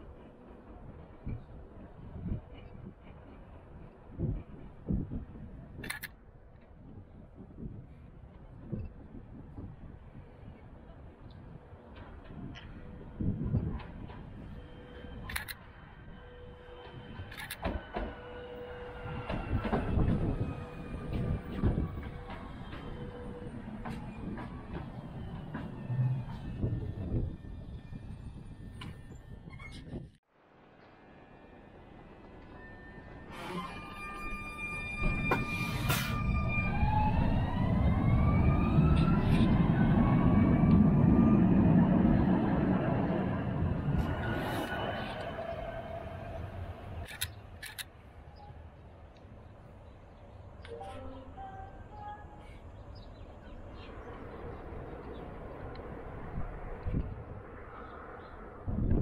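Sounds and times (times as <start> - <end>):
tram electric drive whine: 0.0 - 59.0
wheels rumbling on rails: 0.0 - 59.0
sharp clicks: 47.0 - 47.9.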